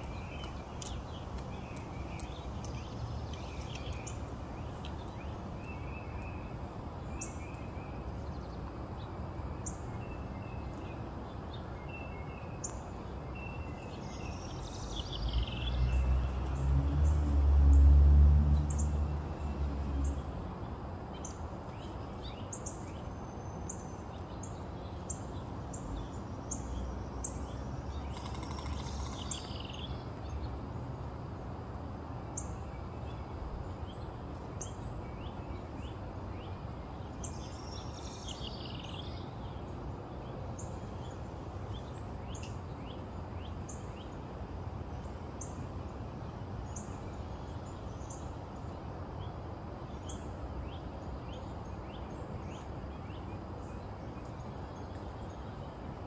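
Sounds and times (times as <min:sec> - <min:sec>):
small birds chirping: 0:00.0 - 0:17.2, 0:18.5 - 0:30.6, 0:32.3 - 0:56.0.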